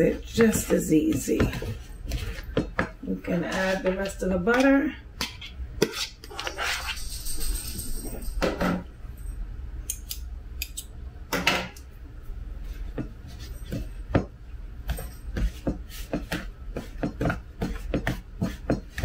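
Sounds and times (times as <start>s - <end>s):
fork scraping plastic bowl: 3.4s - 7.0s.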